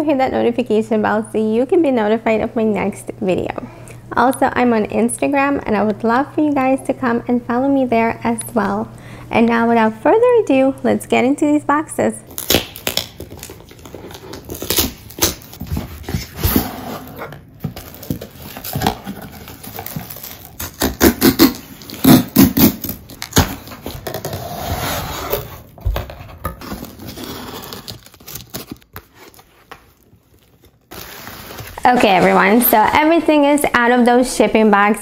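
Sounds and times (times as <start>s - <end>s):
packing tape peeling: 12.3s - 24.6s, 26.6s - 31.8s
cardboard tearing and scraping: 12.3s - 32.6s.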